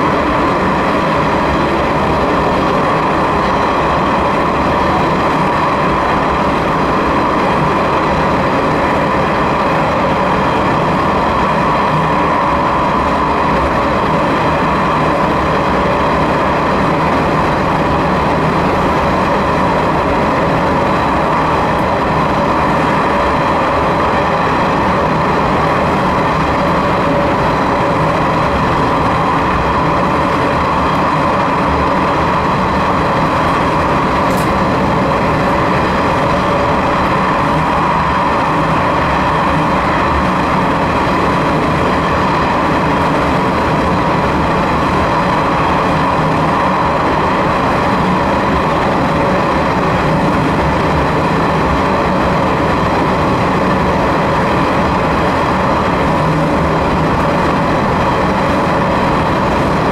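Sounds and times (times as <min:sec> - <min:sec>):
diesel railcar running in tunnel: 0:00.0 - 0:59.9.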